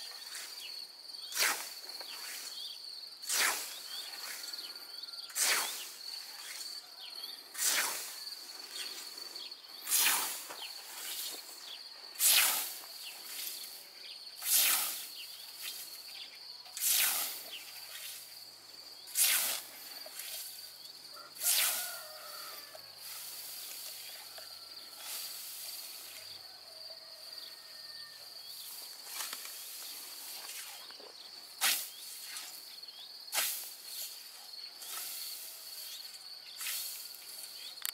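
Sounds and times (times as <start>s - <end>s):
scythe swishing through grass: 1.3s - 2.6s, 3.2s - 4.5s, 5.3s - 6.6s, 7.6s - 9.0s, 9.8s - 11.5s, 12.2s - 13.7s, 14.4s - 16.0s, 16.8s - 18.3s, 19.1s - 20.6s, 21.4s - 22.2s, 25.0s - 26.2s, 28.6s - 30.9s, 31.6s - 32.7s, 33.3s - 37.6s.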